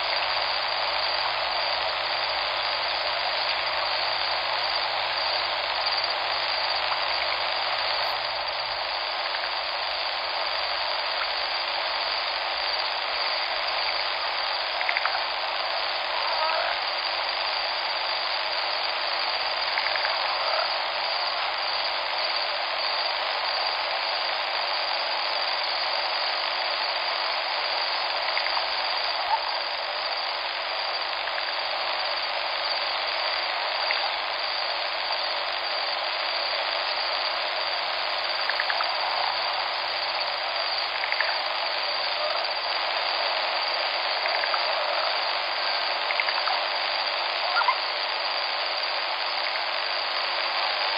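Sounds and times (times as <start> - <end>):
faint ticks: 38.4 - 38.9.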